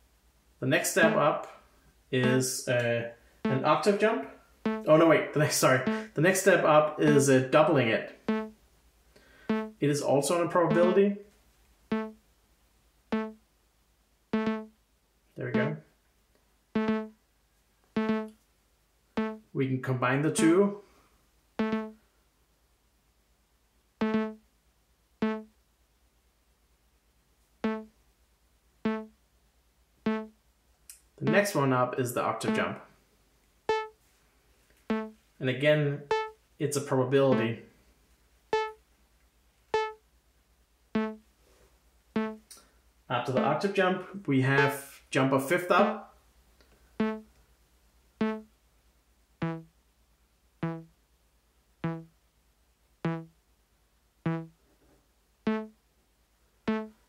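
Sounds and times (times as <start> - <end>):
synthesizer notes: 1.0 - 1.2, 2.2 - 2.5, 3.5 - 4.1, 4.7 - 5.0, 5.7 - 6.2, 8.3 - 8.6, 9.5 - 9.8, 10.4 - 11.2, 11.9 - 12.2, 13.2 - 13.4, 14.4 - 14.7, 15.5 - 15.8, 16.8 - 17.2, 18.0 - 18.3, 19.2 - 19.5, 21.6 - 22.0, 24.0 - 24.4, 25.2 - 25.5, 27.6 - 27.9, 28.9 - 29.1, 30.1 - 30.3, 31.2 - 31.6, 32.4 - 32.8, 33.7 - 34.0, 34.9 - 35.2, 36.1 - 36.4, 38.6 - 38.8, 39.8 - 40.0, 41.0 - 41.2, 42.2 - 42.4, 43.3 - 43.7, 44.6 - 44.8, 47.0 - 47.3, 48.2 - 48.5, 49.4 - 49.7, 50.6 - 50.9, 51.8 - 52.1, 53.1 - 53.3, 54.3 - 54.6, 55.5 - 55.8, 56.7 - 57.0.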